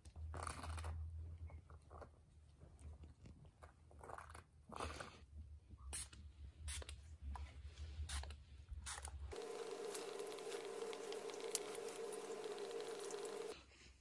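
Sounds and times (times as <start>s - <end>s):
spray bottle spraying: 8.9s - 13.6s
steady hum: 9.3s - 13.6s.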